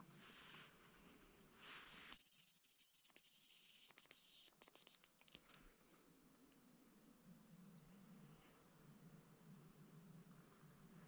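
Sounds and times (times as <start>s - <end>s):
high decoy whistle notes: 2.2s - 5.1s.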